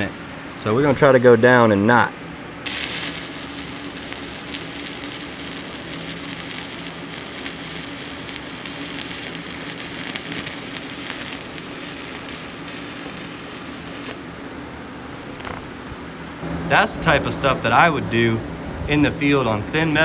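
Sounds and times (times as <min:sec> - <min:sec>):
welding arc crackling: 0:02.6 - 0:14.2.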